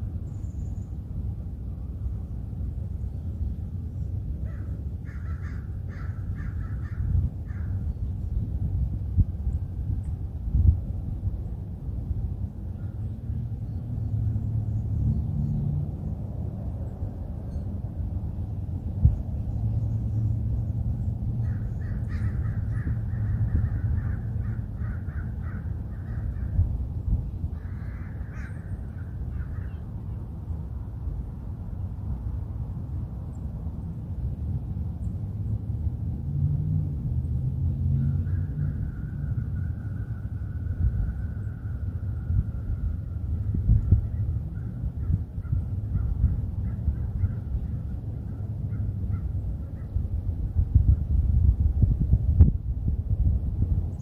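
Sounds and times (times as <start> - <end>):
steady low rumble: 0.0 - 54.0
crow cawing: 4.5 - 7.8, 21.4 - 26.6, 27.6 - 29.8.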